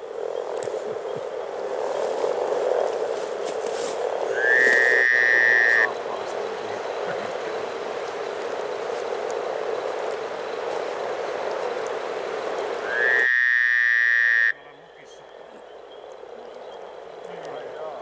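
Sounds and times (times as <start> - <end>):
frogs croaking in chorus: 0.0 - 18.0
loud steady high tone: 4.4 - 7.6, 12.8 - 15.5.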